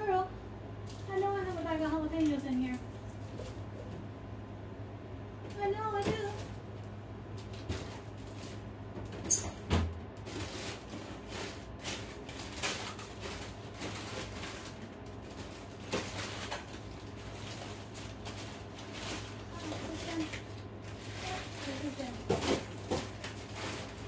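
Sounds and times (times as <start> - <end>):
freezer hum: 0.0 - 24.0
plastic bags of frozen food rustling: 10.2 - 24.0.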